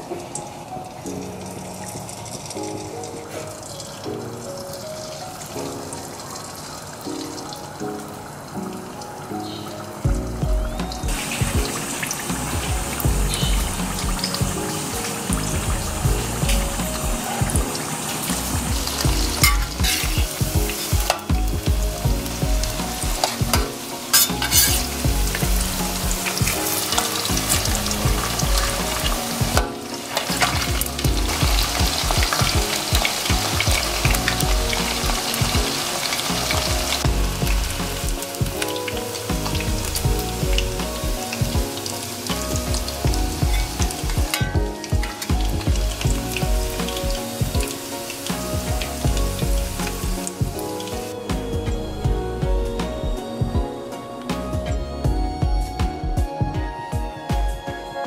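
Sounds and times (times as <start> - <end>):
oil bubbling and sizzling: 0.0 - 52.2
metal spoon stirring: 19.4 - 20.1, 24.1 - 24.9.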